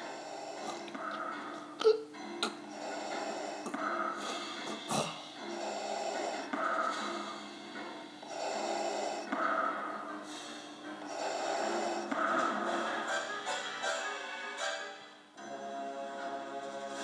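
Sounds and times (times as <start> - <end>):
mechanical respirator breathing: 0.0 - 1.7, 2.6 - 13.2.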